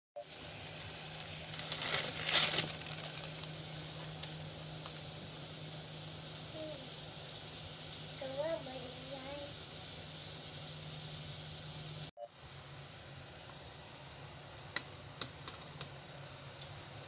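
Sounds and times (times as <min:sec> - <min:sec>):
water boiling in a pot: 0:00.2 - 0:12.1.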